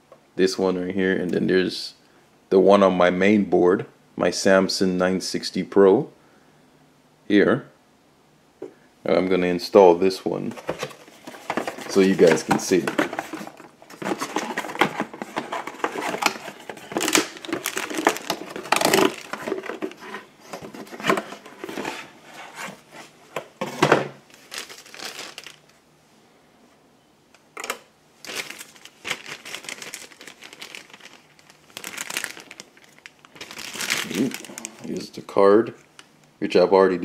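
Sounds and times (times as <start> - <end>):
cardboard and plastic wrapping rustling: 10.4 - 25.8, 28.2 - 36.0.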